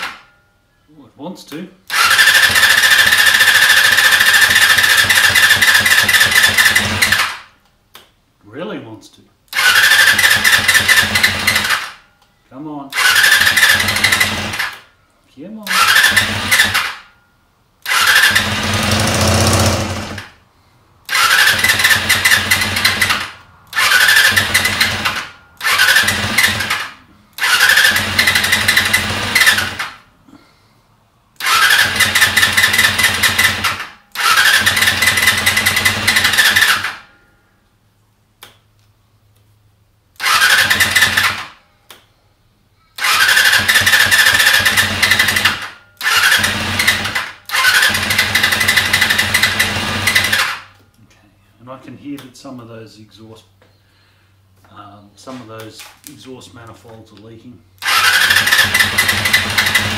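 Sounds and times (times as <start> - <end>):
motorcycle engine cranking: 1.9 - 7.5, 9.5 - 12.0, 12.9 - 14.9, 15.7 - 17.1, 17.8 - 20.4, 21.0 - 30.0, 31.4 - 37.1, 40.2 - 41.6, 43.0 - 50.8, 57.8 - 59.9.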